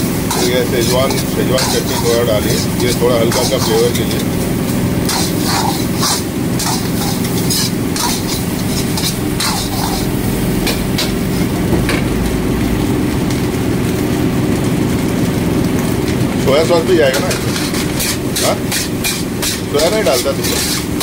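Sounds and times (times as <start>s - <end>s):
steady low rumble: 0.0s - 14.8s
metal ladle scraping a wok: 0.2s - 11.5s, 17.2s - 21.0s.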